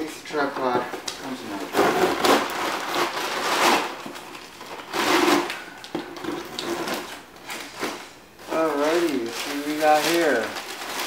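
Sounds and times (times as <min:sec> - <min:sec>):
scissors cutting tape and cardboard: 0:01.8 - 0:03.8.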